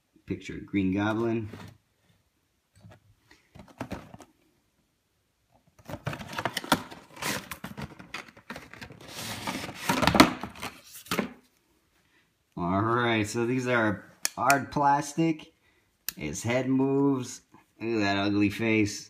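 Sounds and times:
cardboard and packaging rustling: 2.8 - 4.5, 5.7 - 11.5.

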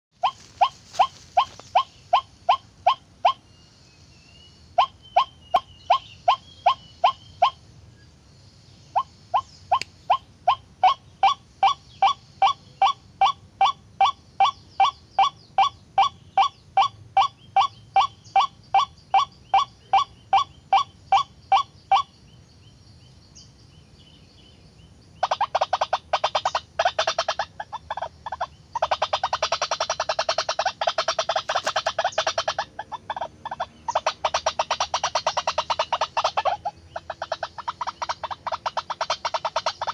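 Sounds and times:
waterhen calling: 25.2 - 39.9.

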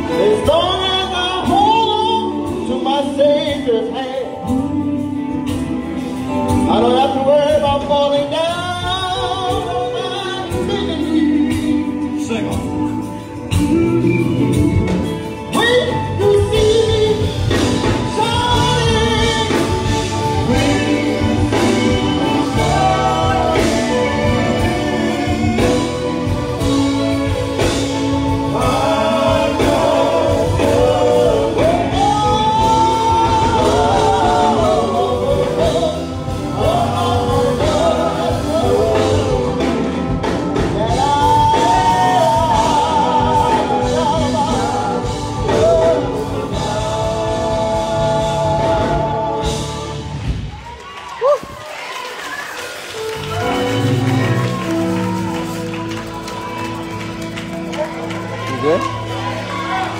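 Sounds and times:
instrumental accompaniment: 0.0 - 50.7, 52.9 - 59.9
gospel group singing: 0.0 - 50.8, 53.0 - 59.9.

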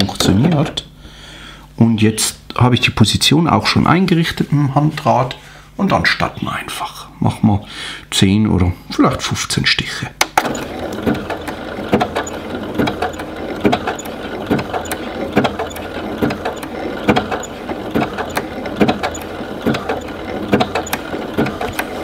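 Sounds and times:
sewing machine needle knocks: 10.2 - 22.0
sewing machine motor hum: 10.4 - 22.0.

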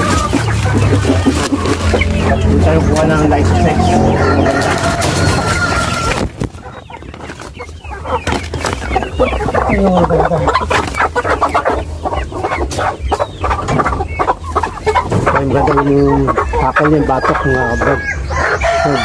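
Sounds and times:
hens clucking and squawking: 0.0 - 19.0.

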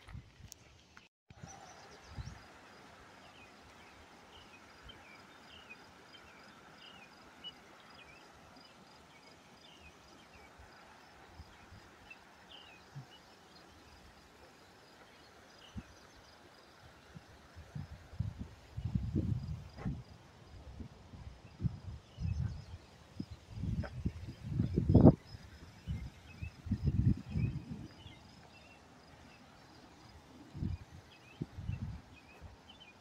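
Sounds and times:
small stream over rocks: 0.0 - 18.8.

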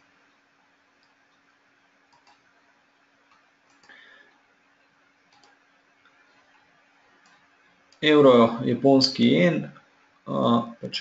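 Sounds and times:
faint steady hum: 0.0 - 11.0
computer mouse clicks: 2.1 - 2.6, 3.2 - 4.4, 5.3 - 5.6, 7.2 - 8.0.

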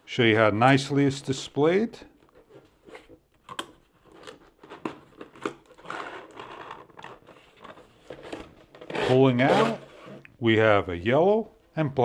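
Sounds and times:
cardboard scraping rub: 4.0 - 10.3.

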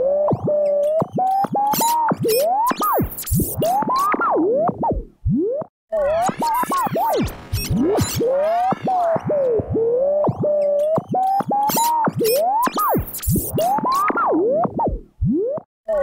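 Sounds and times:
radio tuning whistles: 6.0 - 14.2
radio crackles and clicks: 6.1 - 15.6.

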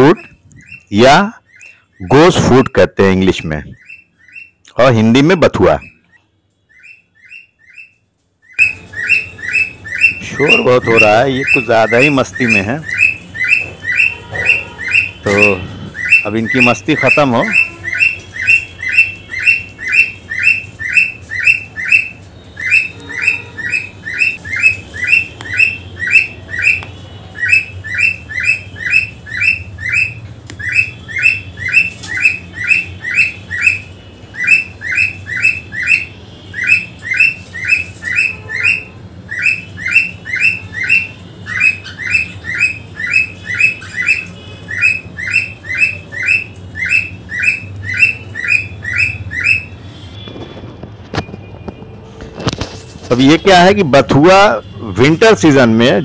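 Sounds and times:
parrot chirping shrilly: 0.0 - 50.1.

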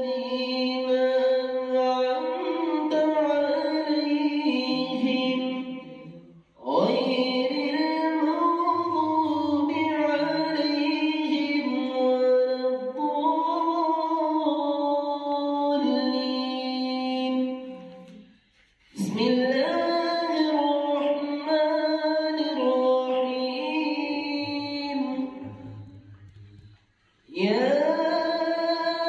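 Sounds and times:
man chanting melodically: 23.4 - 26.6.

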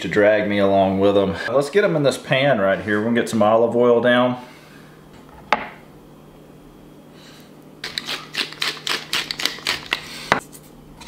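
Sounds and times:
spice shaker rattling: 7.8 - 10.1.

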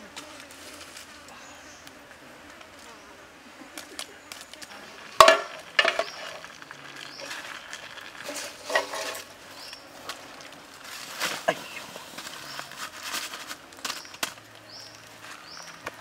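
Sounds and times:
metal bowl and sticks clinking: 5.1 - 9.3.

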